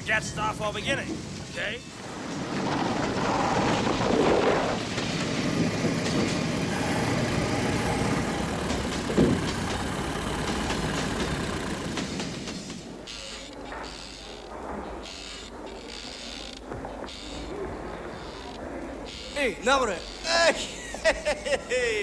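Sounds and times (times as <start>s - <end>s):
rumbling vehicle noise: 1.1s - 15.6s.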